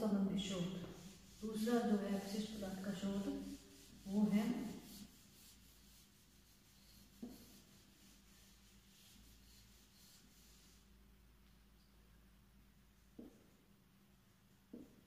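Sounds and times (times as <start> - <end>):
marker scratching on whiteboard: 0.6 - 10.8.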